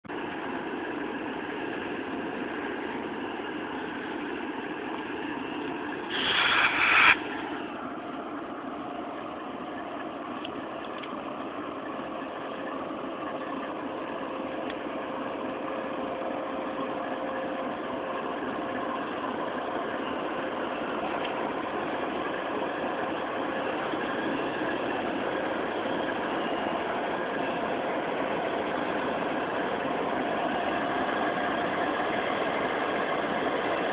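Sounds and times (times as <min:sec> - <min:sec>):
locomotive engines running: 0:00.0 - 0:33.9
loud high-pitched burst: 0:06.1 - 0:07.4.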